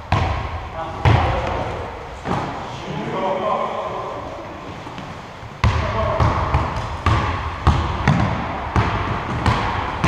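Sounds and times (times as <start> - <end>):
basketball bouncing on wooden floor: 0.1 - 1.6, 5.6 - 10.0.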